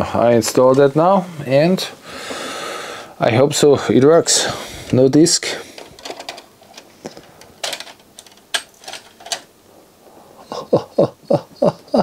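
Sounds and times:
disc loading mechanism clicking: 0:05.8 - 0:09.5.

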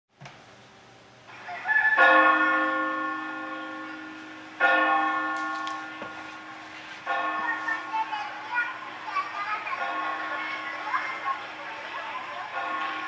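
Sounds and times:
bell ringing: 0:02.0 - 0:08.7.

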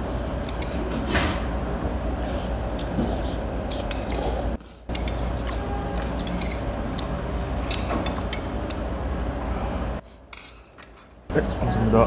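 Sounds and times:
utensils clinking against bowls: 0:03.7 - 0:08.5.

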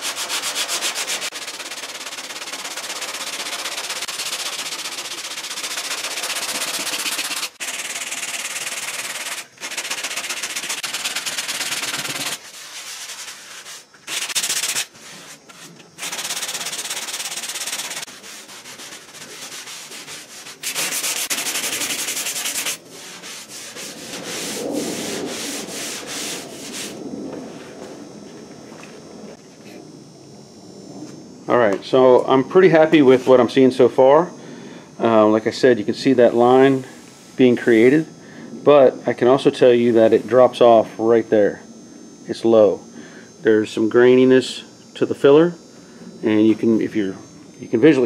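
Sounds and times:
sandpaper rasping on filler: 0:00.0 - 0:27.0.

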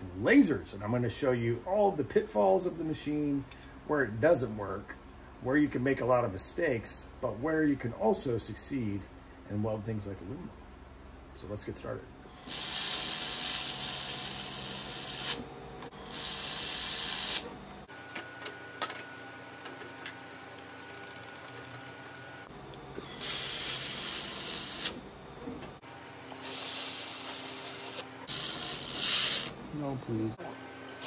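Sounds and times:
laser welder hissing: 0:12.4 - 0:17.5, 0:23.0 - 0:25.0, 0:26.4 - 0:29.6.

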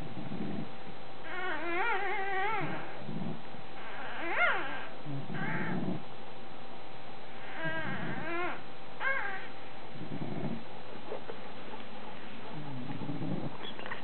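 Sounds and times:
puppies whining and squealing: 0:01.2 - 0:03.1, 0:03.8 - 0:06.0, 0:07.4 - 0:09.6, 0:12.7 - 0:14.0.

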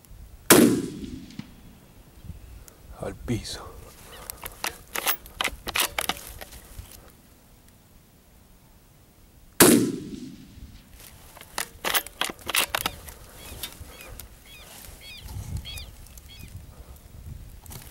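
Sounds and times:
rifle shot: 0:00.5 - 0:01.7, 0:09.6 - 0:10.9
bird calling: 0:03.4 - 0:07.1, 0:11.5 - 0:16.7
sharp clicks and knocks: 0:04.3 - 0:06.6, 0:11.3 - 0:14.3.

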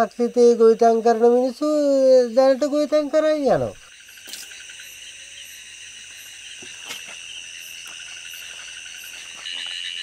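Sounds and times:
crickets calling: 0:00.0 - 0:10.0.

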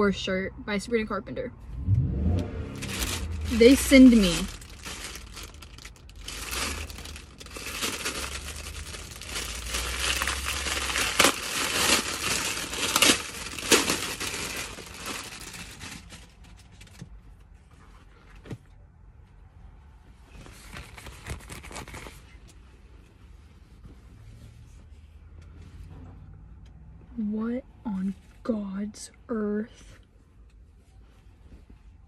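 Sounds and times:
soft rustling: 0:02.7 - 0:18.6
plastic bag crinkling: 0:02.8 - 0:16.4.

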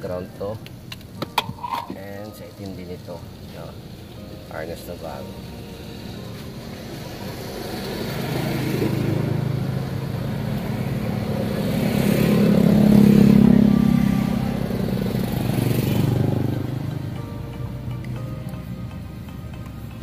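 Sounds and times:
vehicle engine passing by: 0:05.3 - 0:17.3.

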